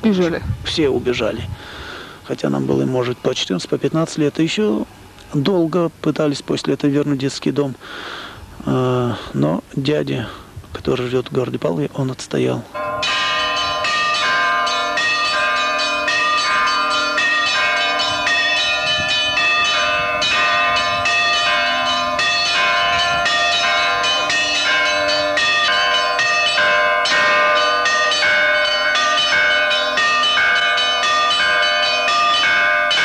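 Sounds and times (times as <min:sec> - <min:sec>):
church bells pealing: 0:12.6 - 0:33.0
low bell ringing: 0:12.7 - 0:33.0.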